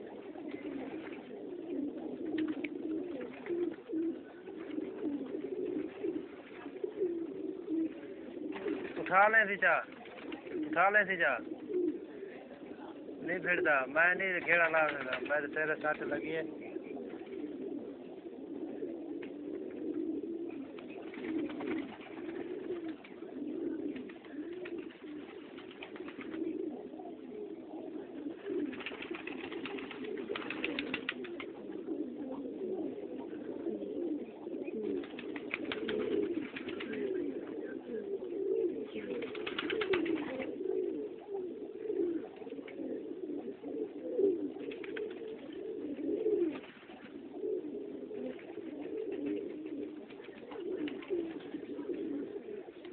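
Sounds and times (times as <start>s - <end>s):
pigeons cooing: 0.0s - 52.9s
rustling bursts: 14.4s - 16.1s, 28.6s - 31.5s.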